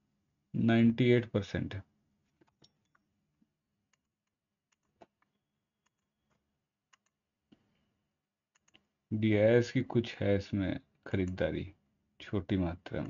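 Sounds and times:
faint mouse clicks: 0:03.9 - 0:07.6, 0:08.6 - 0:08.9.

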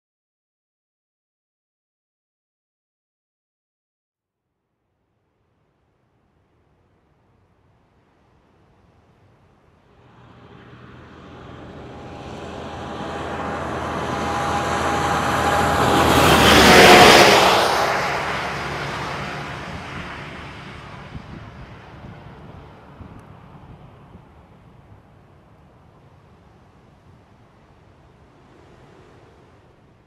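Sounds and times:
vehicle driving past: 0:09.8 - 0:30.0.

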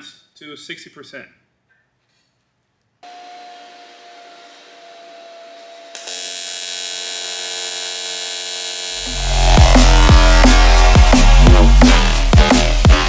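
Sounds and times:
welding arc buzzing: 0:05.9 - 0:13.0.

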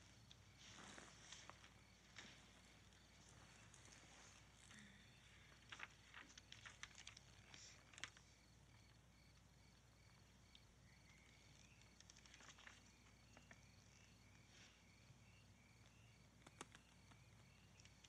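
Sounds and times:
crickets chirping: 0:00.0 - 0:18.0
magazine pages rustling: 0:05.3 - 0:08.3.

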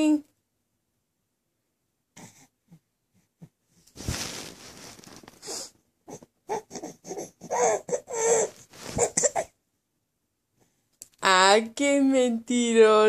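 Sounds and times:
rustling: 0:03.8 - 0:05.8, 0:08.4 - 0:09.5
baby fussing cries: 0:05.4 - 0:09.6.

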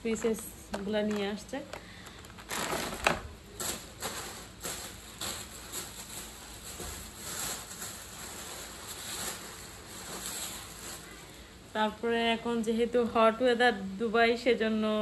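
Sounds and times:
plastic bags rustling: 0:00.0 - 0:11.8.

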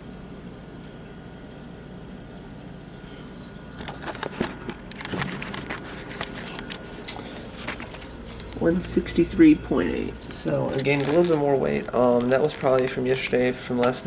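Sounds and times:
low room hum: 0:00.0 - 0:14.0
camera handling clicks and rustles: 0:03.8 - 0:08.6, 0:10.7 - 0:11.4.

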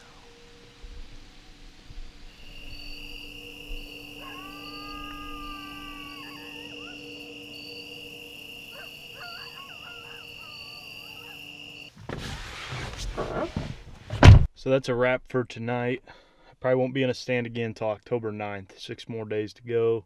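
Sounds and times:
howl-like animal call: 0:00.0 - 0:01.4, 0:02.3 - 0:11.8
high insect trill: 0:00.0 - 0:12.0
pulsing high chirp: 0:01.2 - 0:11.9
short wavering animal calls: 0:02.3 - 0:11.8.

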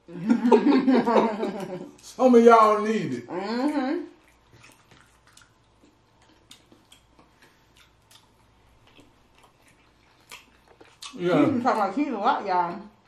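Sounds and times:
person quietly chewing food: 0:03.5 - 0:11.6.

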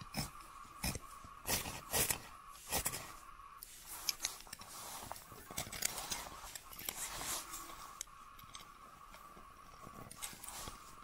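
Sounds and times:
knife scraping wood: 0:00.0 - 0:08.0.

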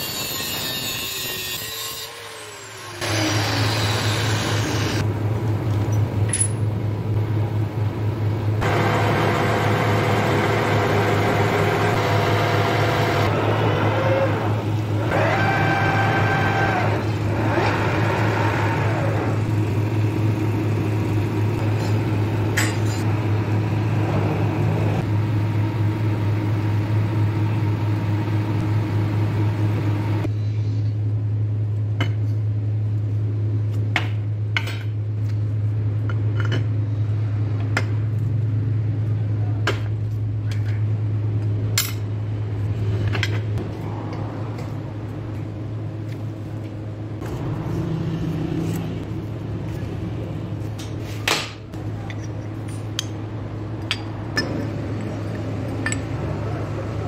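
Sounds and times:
metal clinks and knocks: 0:05.8 - 0:06.8, 0:53.8 - 0:56.2
metal lathe running: 0:08.6 - 0:30.3.

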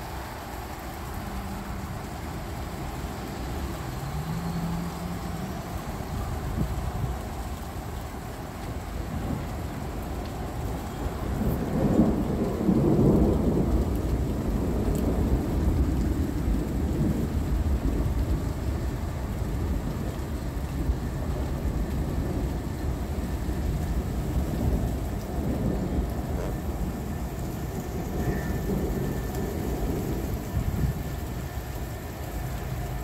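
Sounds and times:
gentle rain: 0:00.0 - 0:33.0
rolling thunder: 0:08.8 - 0:32.1.

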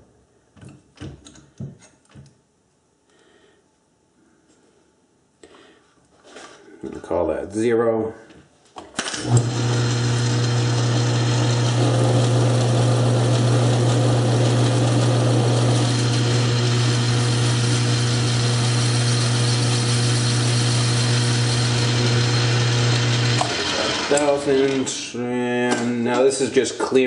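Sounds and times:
lathe cutting noise: 0:09.1 - 0:25.0
metal lathe humming: 0:09.2 - 0:25.0.

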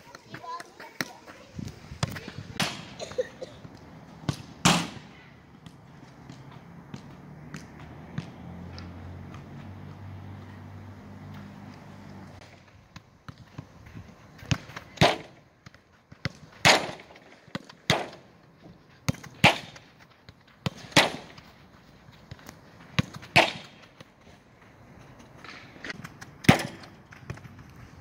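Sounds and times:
football being kicked: 0:14.4 - 0:18.3, 0:19.1 - 0:21.4, 0:22.3 - 0:23.9.

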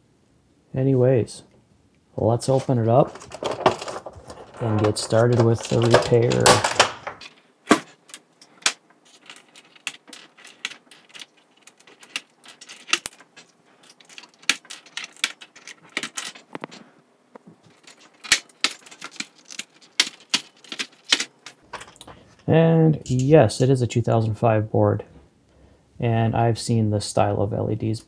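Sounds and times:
plastic clicks and clatter: 0:02.6 - 0:16.8, 0:17.7 - 0:22.2.

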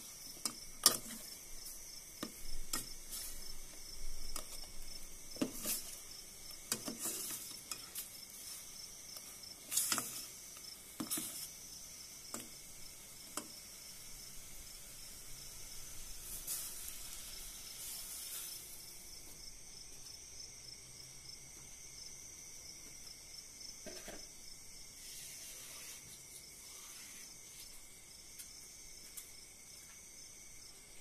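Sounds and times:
fish sizzling in a pot: 0:00.0 - 0:19.7, 0:24.8 - 0:28.4
spatula scraping and knocking pot: 0:00.2 - 0:11.5.

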